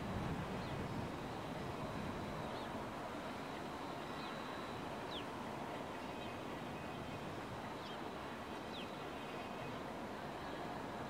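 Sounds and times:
steady rushing outdoor background: 0.0s - 11.0s.

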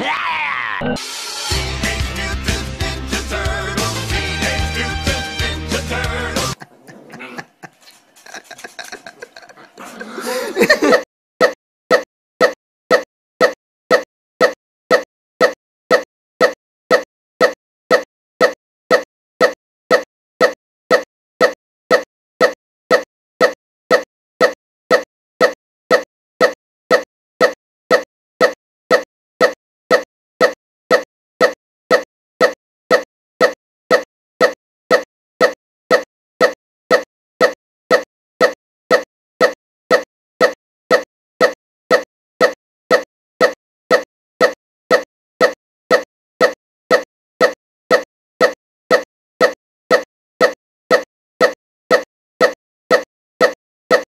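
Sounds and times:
short repeating pop: 11.4s - 54.0s.

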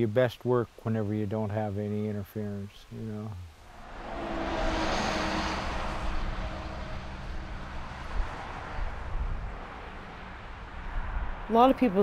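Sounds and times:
low traffic rumble: 0.0s - 12.0s
truck passing by: 3.6s - 12.0s.

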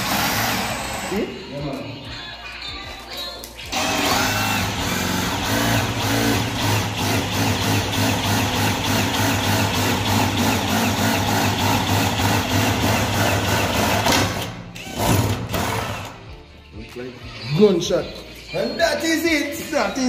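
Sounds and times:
cordless drill boring wood: 0.0s - 1.3s, 3.7s - 14.1s.

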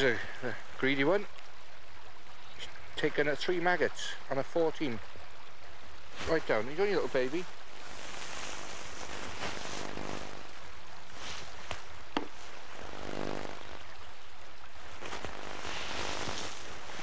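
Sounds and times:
faint humming drone: 4.9s - 17.0s.

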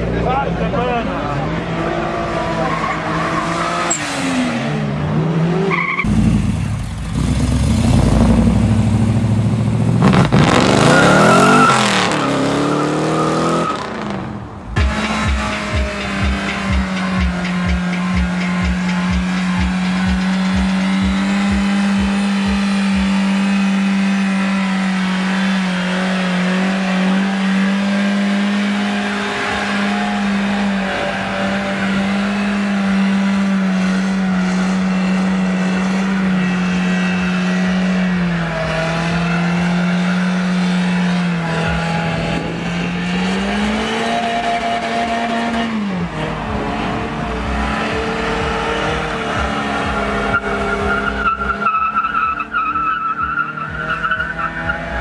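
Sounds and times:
car engine revving: 0.0s - 55.0s
tyres squealing: 49.6s - 55.0s.

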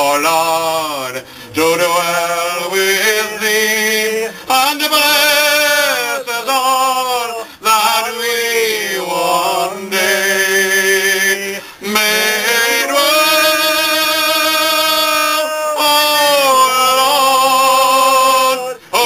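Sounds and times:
man singing unaccompanied: 0.0s - 19.0s
man breathing: 1.2s - 1.6s, 4.3s - 4.5s, 11.6s - 11.8s.

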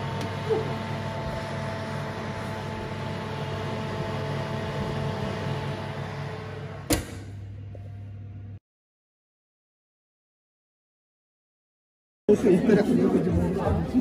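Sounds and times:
oven fan humming: 0.0s - 8.6s.

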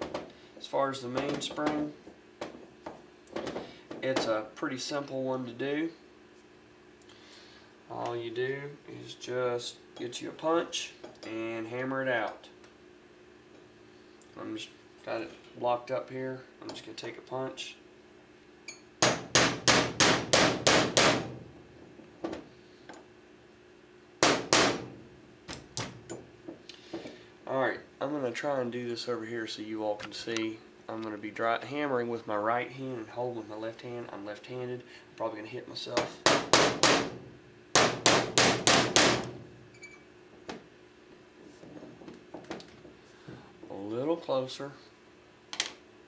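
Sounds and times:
hammer striking steel punch: 19.0s - 21.4s, 24.2s - 24.9s, 36.3s - 37.2s, 37.8s - 39.4s.

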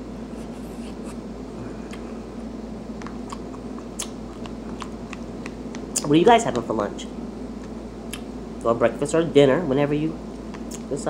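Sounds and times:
steady low hum: 0.0s - 11.0s
person chewing food: 1.7s - 6.0s.

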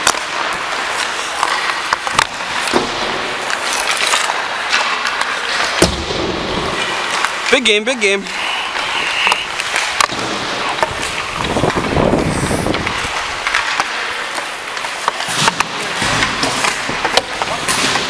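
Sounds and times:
hockey sticks and pucks clacking: 0.0s - 18.0s
skates scraping on ice: 0.0s - 18.0s.

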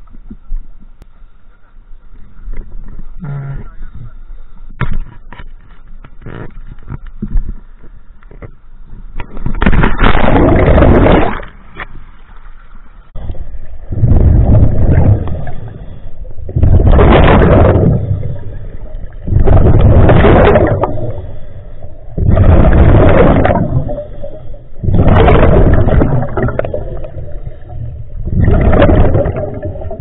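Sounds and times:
bubbling exhaled air underwater: 9.6s - 11.5s, 13.2s - 30.0s.

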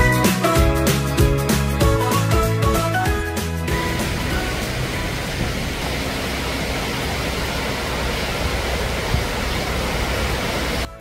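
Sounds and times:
rushing open air noise: 2.6s - 11.0s.

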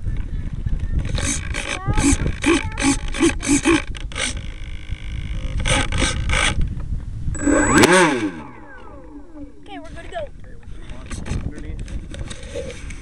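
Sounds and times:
electric motor revving: 1.1s - 6.6s, 7.4s - 9.9s
servos buzzing in pulses: 1.1s - 6.6s, 7.3s - 10.1s
low rumble: 6.6s - 10.9s.

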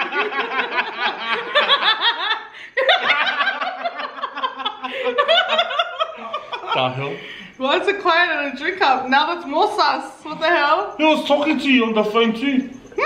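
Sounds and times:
woman and man laughing: 0.0s - 7.0s.

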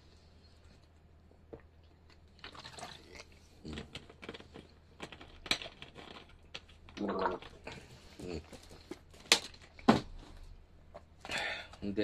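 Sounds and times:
throat or mouth sounds: 7.0s - 8.6s.

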